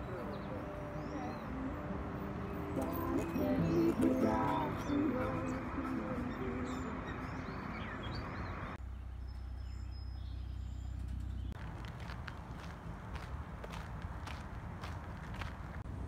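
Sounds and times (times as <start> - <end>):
birds chirping: 0.0 - 15.8
footsteps on paved trail: 2.7 - 8.5, 11.1 - 15.9.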